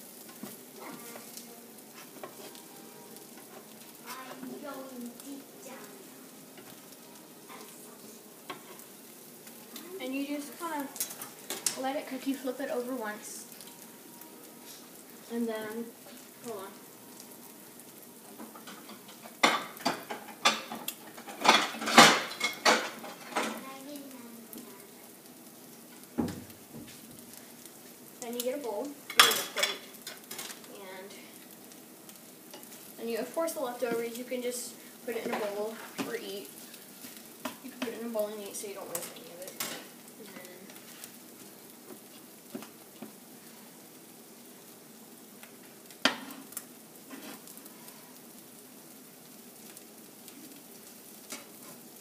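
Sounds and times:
egg sizzling in frying pan: 0.0 - 52.0
dishes and utensils clattering: 18.5 - 23.6, 29.1 - 30.6.

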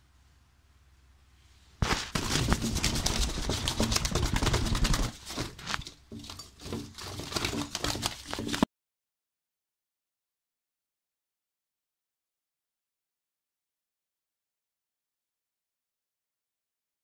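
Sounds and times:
phone microphone handling noise: 1.8 - 5.9.

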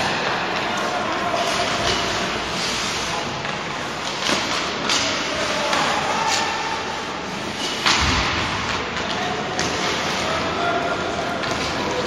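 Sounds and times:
arena noise: 0.0 - 12.0
hockey sticks and puck clacking: 0.0 - 12.0
skates hissing: 1.4 - 4.5.

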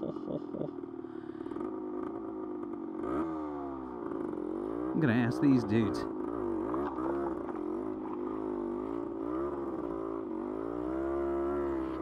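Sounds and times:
two-stroke motorcycle engine running: 0.0 - 12.0.

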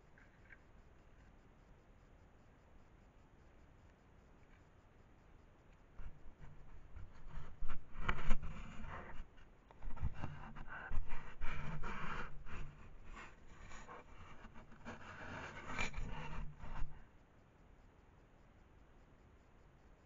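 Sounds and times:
fur rubbing camera housing: 14.0 - 16.9.

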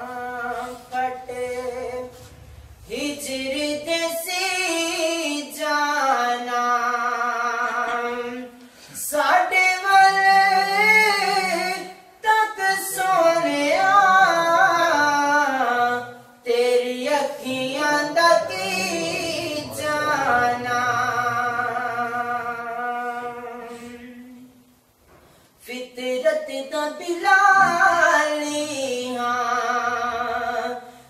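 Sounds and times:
man singing held notes: 0.0 - 24.7.

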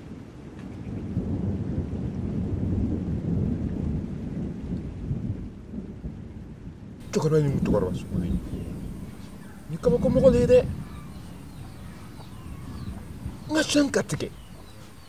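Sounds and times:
low rumbling noise: 7.0 - 15.0.

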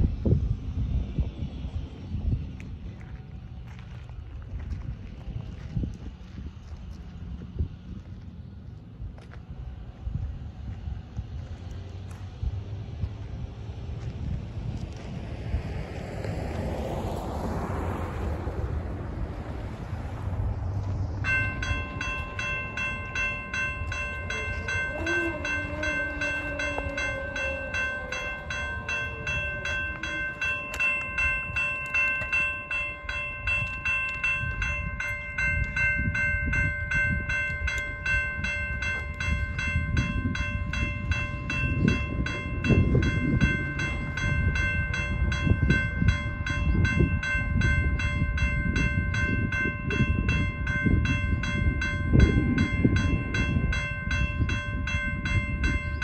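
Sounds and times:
freight train rumble: 0.0 - 56.0
railroad crossing bell dinging: 16.3 - 56.0.

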